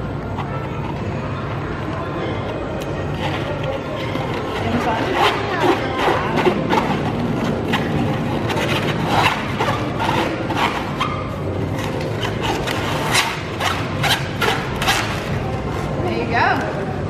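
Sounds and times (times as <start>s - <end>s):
steady background hum: 0.0s - 17.0s
balloon squeaking and rubbing: 3.0s - 16.0s.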